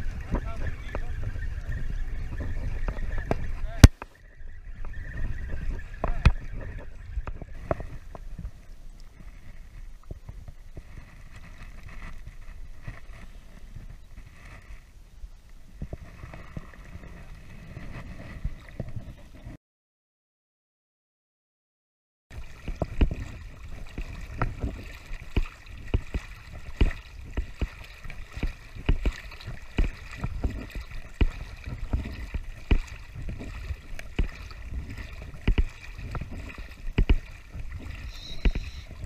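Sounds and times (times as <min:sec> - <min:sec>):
small waves lapping: 0:00.0 - 0:19.6, 0:22.3 - 0:39.0
water slapping camera housing: 0:28.3 - 0:39.0.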